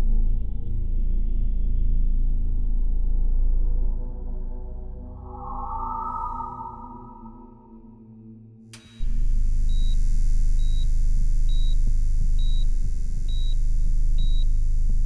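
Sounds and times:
loud low steady drone: 0:08.8 - 0:15.0
patient monitor beeping: 0:08.8 - 0:15.0.

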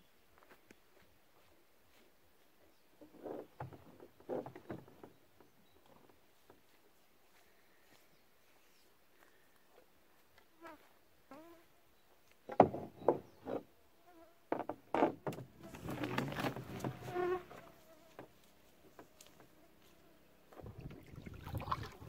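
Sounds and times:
canoe scraping over shore: 0:15.5 - 0:17.8.

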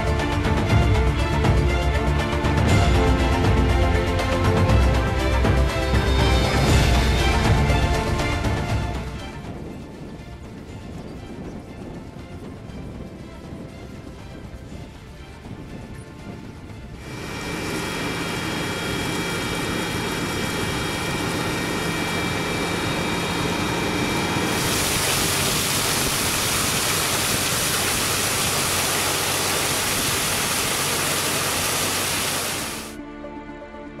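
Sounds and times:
tractor engine running: 0:11.8 - 0:33.0
water spraying from hose: 0:17.0 - 0:33.0.

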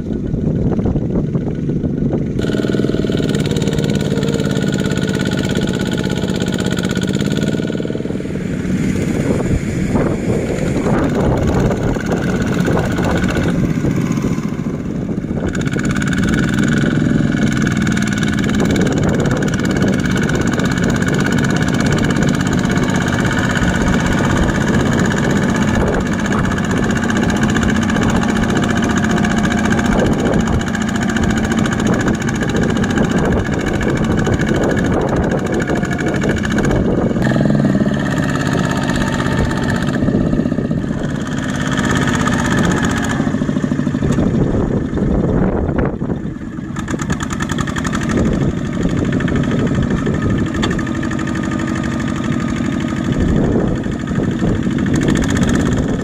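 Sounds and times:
diesel tractor engine running: 0:00.0 - 0:56.0.

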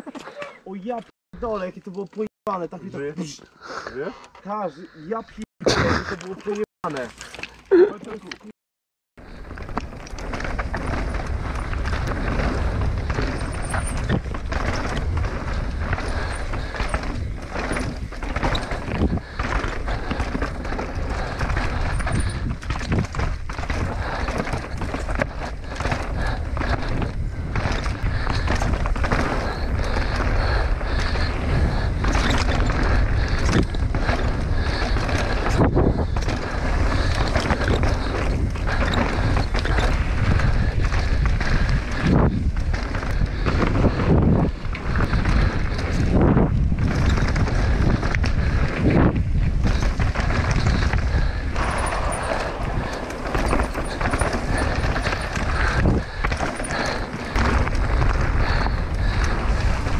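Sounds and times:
bike rattling over rocks: 0:06.2 - 0:08.5, 0:09.2 - 0:59.9
bike tyres rolling over stones: 0:09.2 - 0:59.9
wind buffeting microphone: 0:09.2 - 0:59.9.

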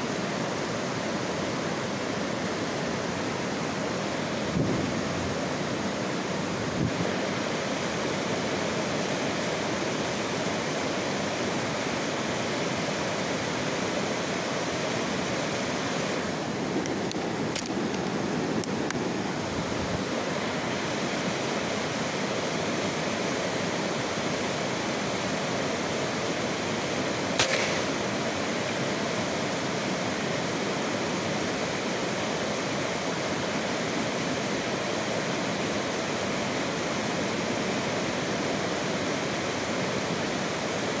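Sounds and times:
steady rushing hiss: 0:00.0 - 0:41.0
short sharp clicks: 0:27.4 - 0:28.0.

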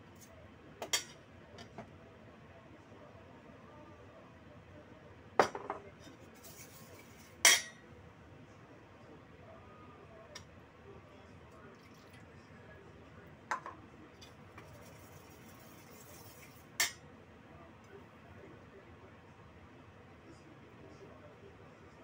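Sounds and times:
spoon clinking against steel bowl: 0:07.4 - 0:07.8.

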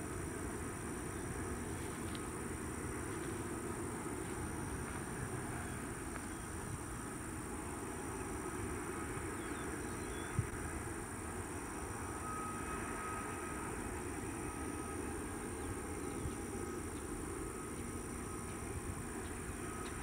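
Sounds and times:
high steady whine: 0:00.0 - 0:20.0
faint bird chirps: 0:09.4 - 0:10.5.

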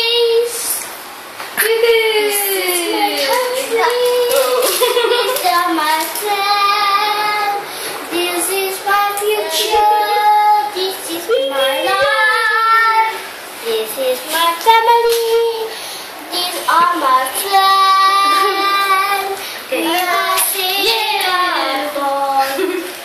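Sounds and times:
child singing unaccompanied: 0:00.0 - 0:00.9, 0:02.4 - 0:22.9.

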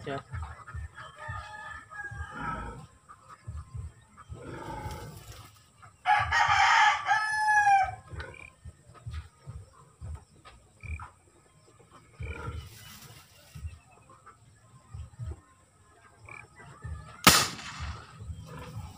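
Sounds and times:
rooster crowing: 0:06.1 - 0:08.0.

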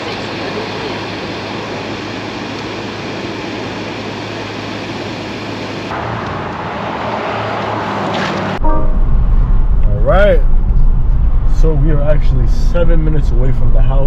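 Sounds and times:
car engine hum: 0:00.0 - 0:14.0
road traffic noise: 0:00.0 - 0:14.0.

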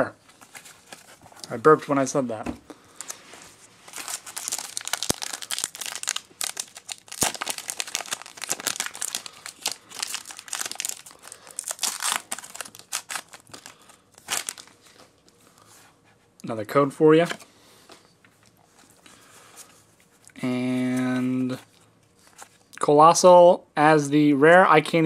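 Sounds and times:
foil wrapper crinkling: 0:03.8 - 0:15.3
foil wrapper tearing: 0:03.9 - 0:14.8.

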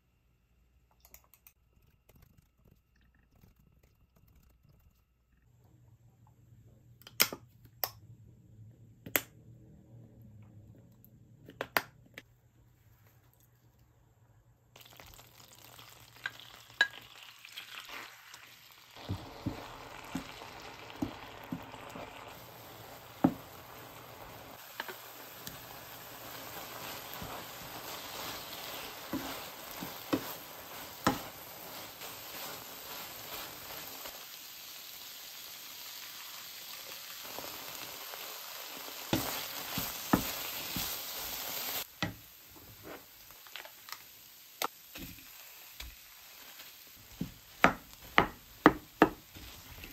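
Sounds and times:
food sizzling in oil: 0:14.8 - 0:49.9
spatula tapping and scraping pan: 0:26.5 - 0:33.9, 0:39.1 - 0:41.0, 0:47.1 - 0:49.9.

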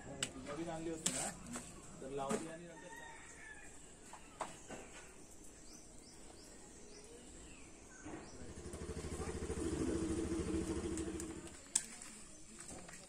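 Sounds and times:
vehicle engine passing by: 0:08.1 - 0:11.5.

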